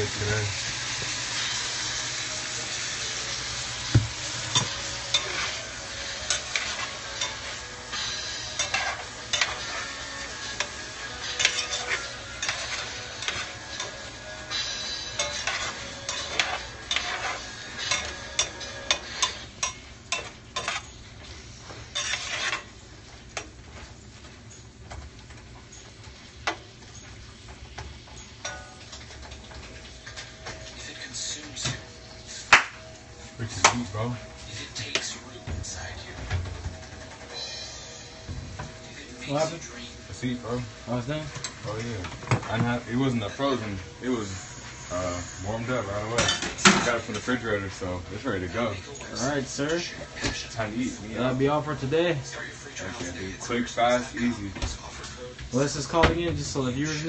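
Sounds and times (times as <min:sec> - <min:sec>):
food sizzling in a skillet: 0:00.0 - 0:24.8, 0:25.6 - 0:35.0, 0:37.2 - 0:57.0
utensil stirring and scraping: 0:03.5 - 0:22.8
utensil knocking against pan: 0:03.9 - 0:04.8.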